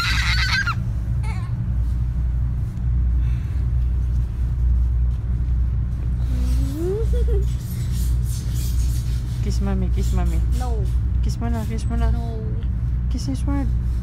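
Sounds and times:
baby squealing: 0.0s - 1.6s.

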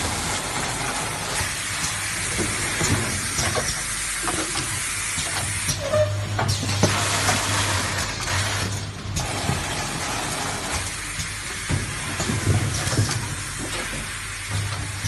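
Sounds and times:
packaging machinery humming: 0.0s - 15.0s
carton knocking on roller conveyor: 9.2s - 15.0s.

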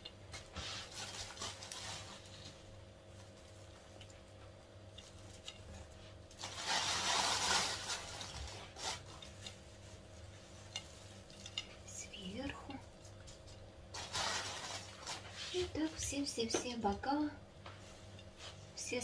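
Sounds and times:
plastic bag rustling: 0.4s - 4.3s, 5.2s - 11.5s, 12.2s - 16.1s.

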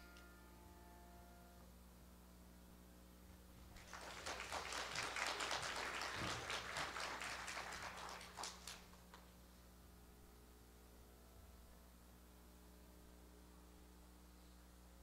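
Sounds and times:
audience applauding: 3.7s - 9.0s.

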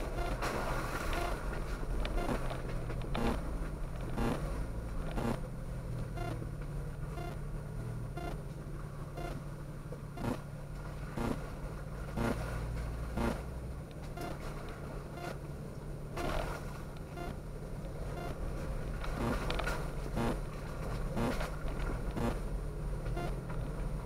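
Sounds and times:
car engine running: 0.0s - 24.0s
sharp clicks: 2.0s - 4.4s, 5.1s - 5.4s, 10.2s - 10.4s, 19.1s - 20.4s, 21.2s - 21.5s, 22.1s - 22.4s.

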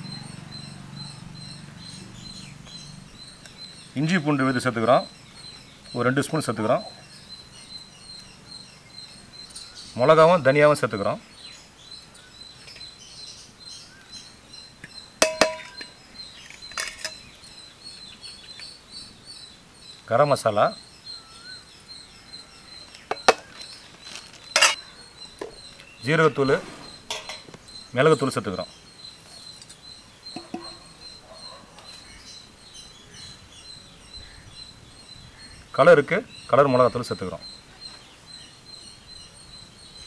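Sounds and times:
birds chirping: 0.0s - 40.0s
insects chirring: 0.0s - 40.0s
metal bowl and spoon clinking: 15.2s - 17.2s, 24.5s - 24.8s, 27.1s - 27.5s, 30.4s - 30.9s.

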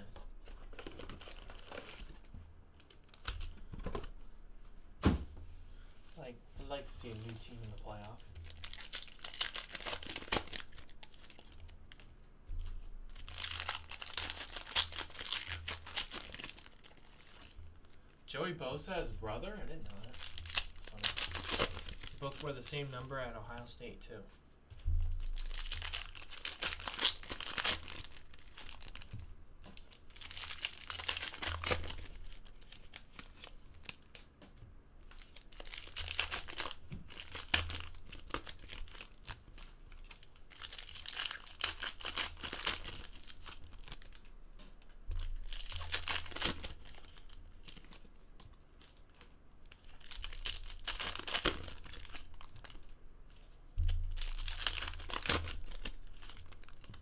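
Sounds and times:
foil card packs tearing and crinkling: 0.4s - 3.6s, 7.0s - 12.0s, 12.6s - 17.6s, 19.7s - 23.8s, 25.2s - 29.2s, 29.8s - 34.2s, 35.0s - 44.3s, 45.2s - 48.1s, 48.8s - 52.9s, 54.0s - 57.0s.

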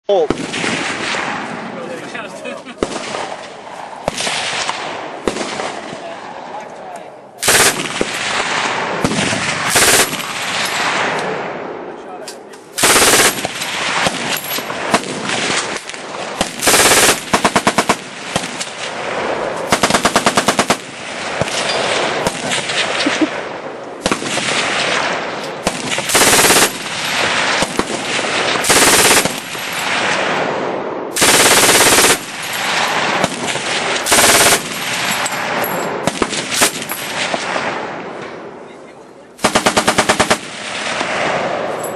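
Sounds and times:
distant gunfire: 0.3s - 1.8s, 2.8s - 6.2s, 7.4s - 11.7s, 12.7s - 38.4s, 39.4s - 41.8s
machine gun bursts: 7.4s - 8.1s, 9.7s - 10.5s, 12.8s - 13.7s, 16.6s - 18.0s, 19.7s - 20.9s, 26.0s - 26.9s, 28.6s - 29.8s, 31.2s - 32.9s, 34.0s - 35.2s, 39.4s - 40.4s.

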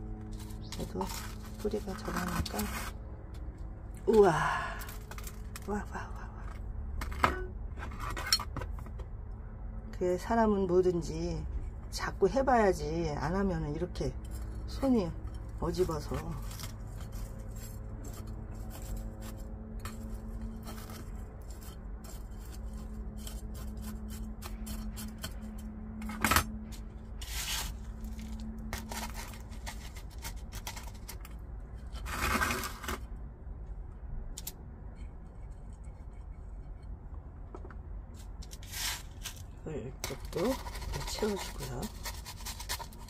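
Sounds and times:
low steady hum: 0.0s - 43.0s
gravel scraping in pot: 0.1s - 9.0s, 13.4s - 33.2s, 38.0s - 43.0s.

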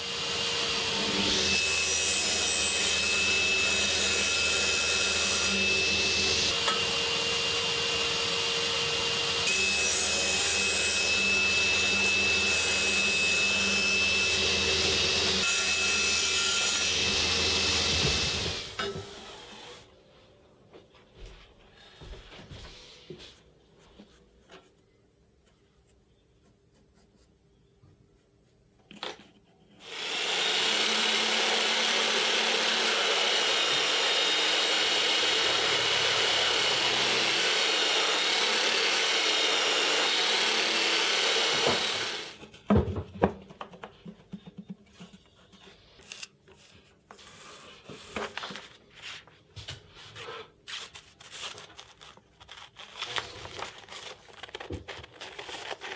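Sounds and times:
belt sander running: 29.8s - 42.4s
paper handling: 43.8s - 55.9s.

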